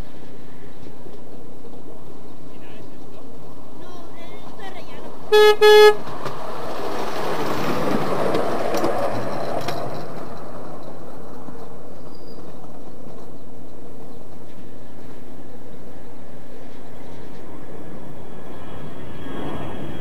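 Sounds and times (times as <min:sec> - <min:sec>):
train rumbling on rails: 0:00.0 - 0:20.0
miniature train toots: 0:05.3 - 0:06.0.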